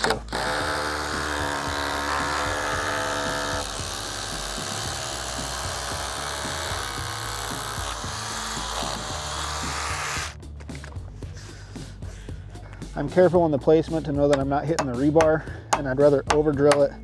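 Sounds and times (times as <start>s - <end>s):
rotary hammer drilling concrete: 0.0s - 10.4s.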